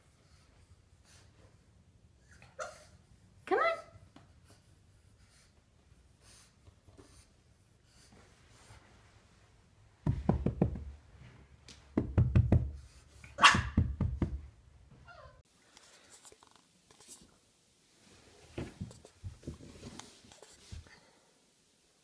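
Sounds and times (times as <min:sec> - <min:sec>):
puppy thumping on carpeted stairs: 0:10.0 - 0:11.1, 0:11.8 - 0:14.6.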